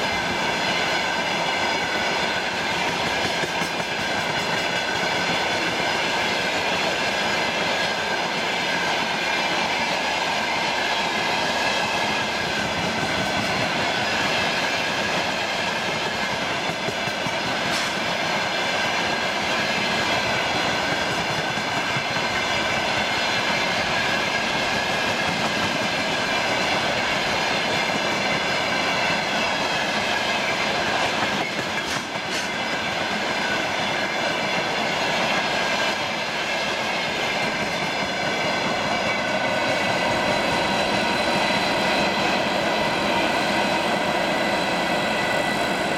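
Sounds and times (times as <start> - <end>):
freight train rolling past: 0.0 - 45.9
high whine from train wheels: 0.0 - 45.9.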